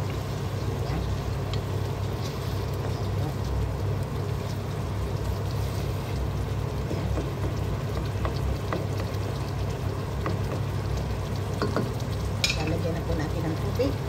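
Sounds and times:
food sizzling in a pot: 0:00.0 - 0:14.0
wooden spoon stirring: 0:05.2 - 0:13.0.

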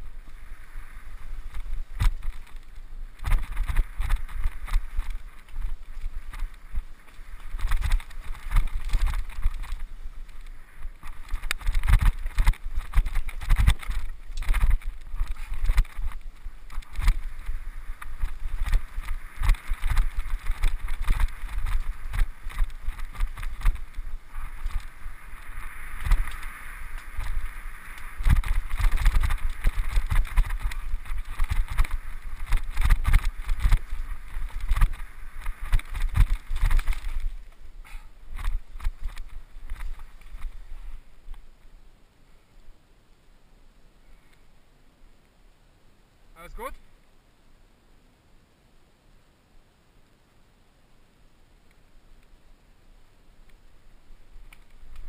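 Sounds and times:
bike rattling on rough trail: 0:00.0 - 0:41.8, 0:53.9 - 0:55.0.

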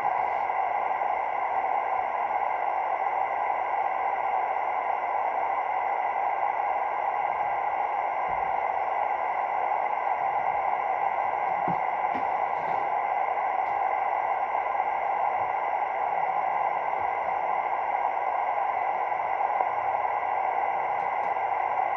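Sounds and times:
faint steady tones: 0:00.0 - 0:21.9
radio static hiss: 0:08.3 - 0:21.9.

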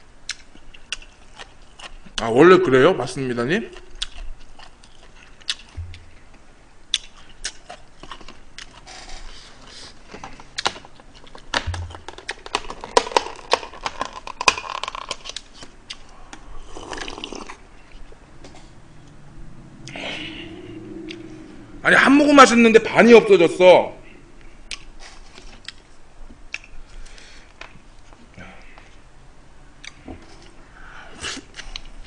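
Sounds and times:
chewing: 0:00.3 - 0:02.2, 0:03.7 - 0:06.2, 0:06.9 - 0:19.2
crackly handling noises: 0:07.0 - 0:16.5.

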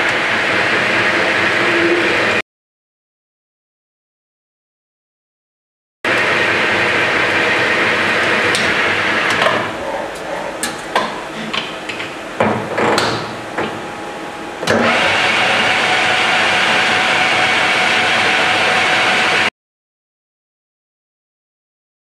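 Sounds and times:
metal lathe running: 0:06.1 - 0:12.9, 0:13.9 - 0:19.5.

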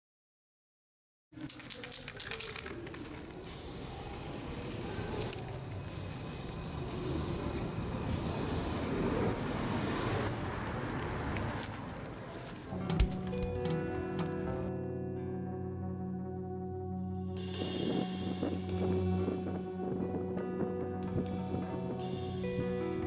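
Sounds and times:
spray can rattling: 0:01.4 - 0:14.4
spray can hissing: 0:01.8 - 0:13.8.

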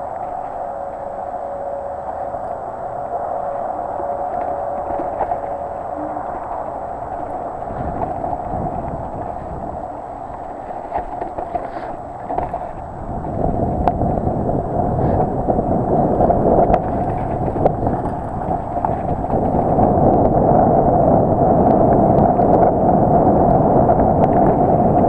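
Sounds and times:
wind rushing over microphone: 0:00.0 - 0:25.0
bike tyre rumble on dirt: 0:04.1 - 0:25.0
bike clicks and rattles: 0:10.3 - 0:12.8.

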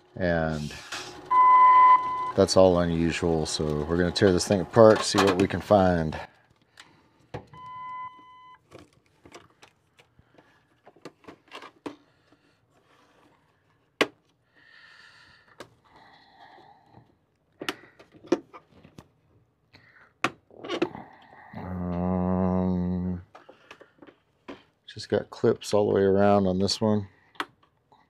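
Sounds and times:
electronic beep: 0:01.3 - 0:02.6, 0:07.6 - 0:08.6.

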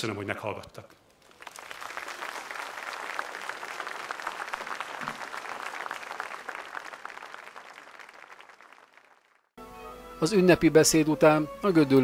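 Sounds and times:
audience applauding: 0:01.2 - 0:09.5.

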